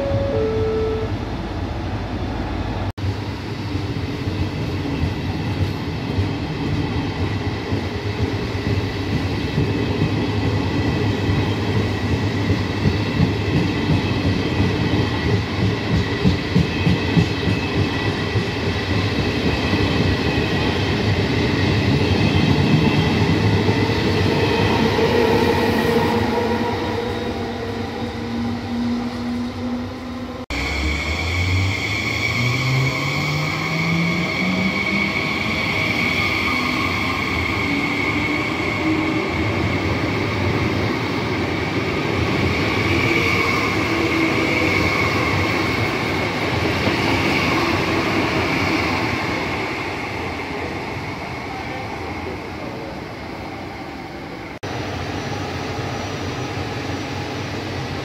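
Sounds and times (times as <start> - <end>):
locomotive humming: 0.0 - 2.9.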